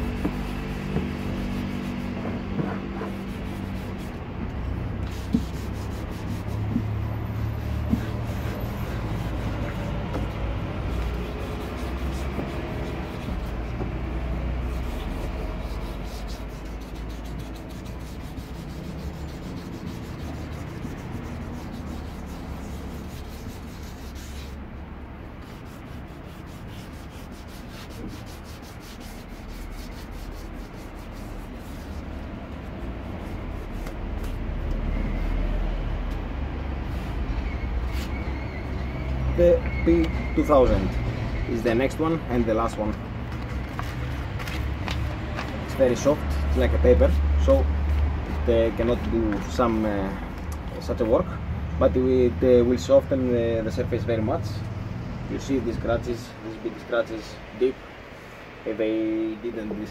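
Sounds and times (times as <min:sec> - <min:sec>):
sandpaper rubbing on plastic: 0:00.0 - 0:04.3, 0:04.9 - 0:24.6, 0:25.4 - 0:35.6, 0:41.7 - 0:51.2.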